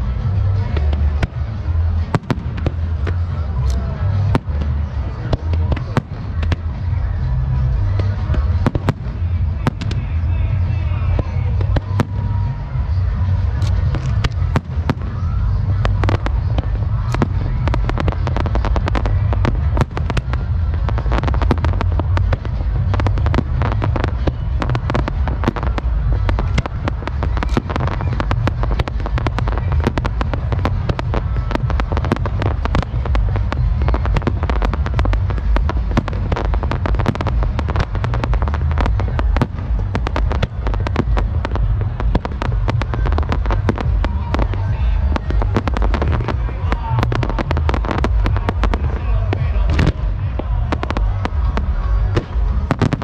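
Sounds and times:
fireworks banging: 0.0 - 53.0
low rumble: 0.0 - 53.0.

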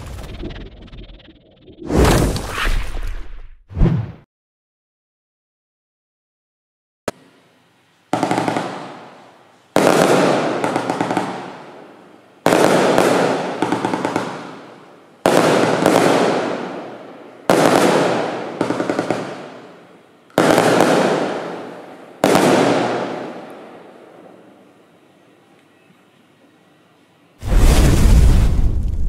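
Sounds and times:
firework bangs: 8.1 - 11.7, 12.5 - 19.8, 20.4 - 23.7, 27.4 - 29.0
crackling glitter fireworks: 8.1 - 25.1.

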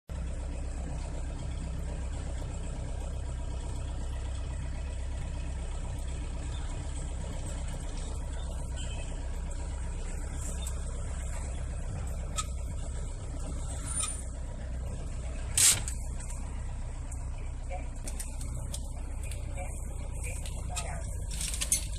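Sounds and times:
truck engine running: 0.1 - 21.9.

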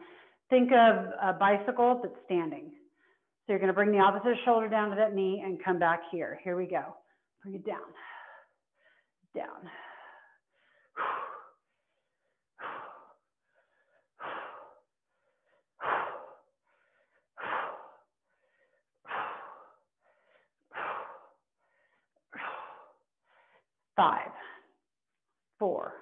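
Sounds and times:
faint breaths in: 7.9 - 23.8.

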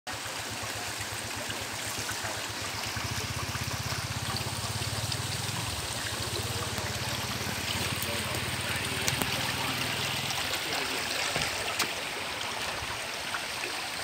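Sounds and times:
water trickling in pond: 0.1 - 14.0
low rapid throbbing: 2.4 - 10.5.

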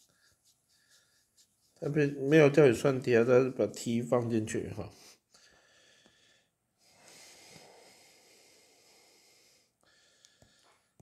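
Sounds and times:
soft breath-like rush: 4.9 - 11.0.

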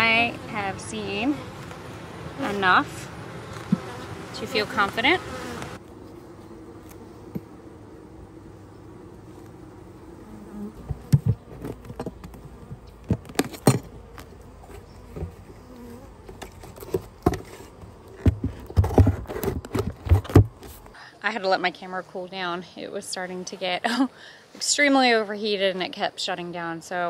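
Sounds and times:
honeybees buzzing: 0.0 - 21.0
knocks and scrapes on hive: 0.3 - 21.0.

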